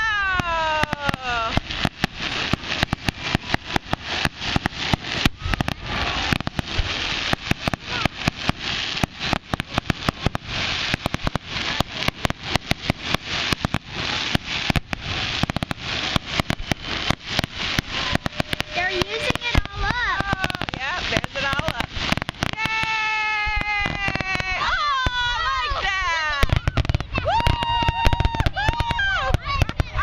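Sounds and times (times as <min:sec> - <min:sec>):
fireworks bangs: 0:00.0 - 0:30.0
fireworks crackling: 0:00.0 - 0:30.0.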